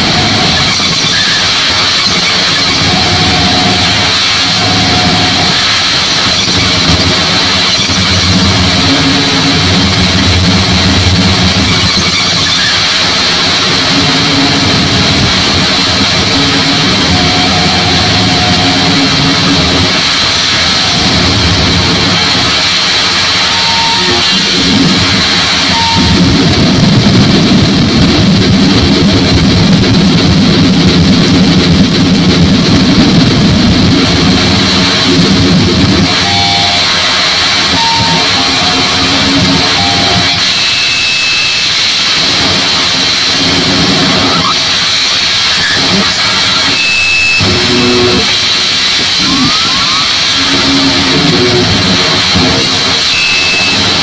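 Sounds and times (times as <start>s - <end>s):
harsh distorted noise music: 0.0s - 54.0s
steady high whine: 0.0s - 54.0s
short electronic beeps: 25.6s - 26.2s, 37.6s - 41.8s, 45.5s - 48.3s, 53.0s - 54.0s.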